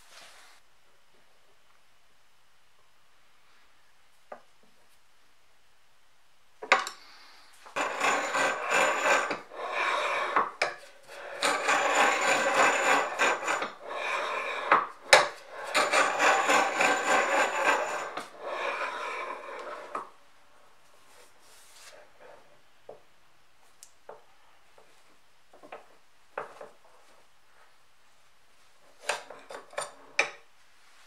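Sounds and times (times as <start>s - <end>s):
knife rasping on grinding stone: 7.7s - 20.1s.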